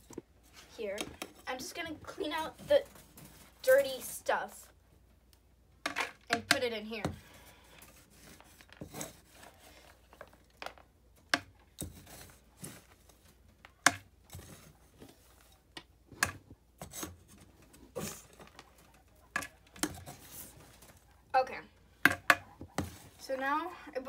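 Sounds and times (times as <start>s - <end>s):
spoon scraping litter tray: 6.6s - 10.0s, 16.8s - 18.6s.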